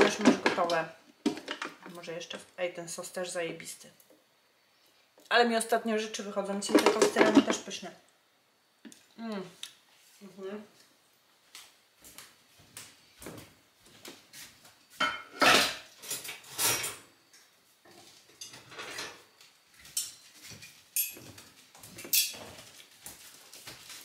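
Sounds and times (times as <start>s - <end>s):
dishes and cutlery clattering: 15.0s - 17.0s, 18.4s - 19.2s, 19.9s - 22.7s.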